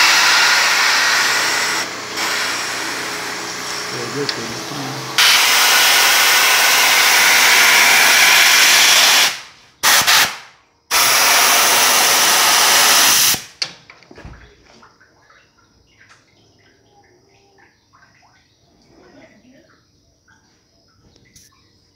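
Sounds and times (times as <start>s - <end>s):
compressed air blow gun hissing: 0.0s - 13.6s.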